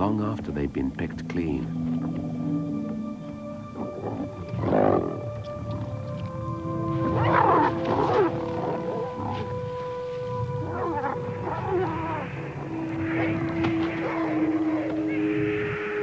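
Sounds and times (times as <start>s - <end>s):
long held music notes: 0.0s - 16.0s
animals snarling and growling: 3.6s - 9.8s, 10.5s - 15.2s.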